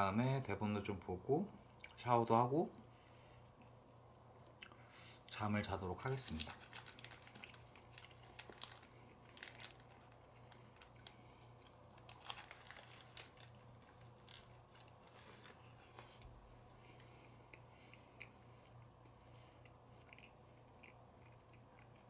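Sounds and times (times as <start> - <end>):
low steady hum: 0.0 - 22.0
small crackles: 6.1 - 16.3
person crunching a snack: 6.4 - 16.2, 17.3 - 22.0.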